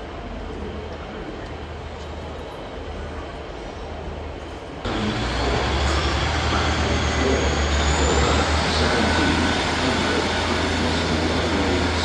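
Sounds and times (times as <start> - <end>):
diesel train engines humming: 0.0 - 12.0
faint high whine: 4.9 - 12.0.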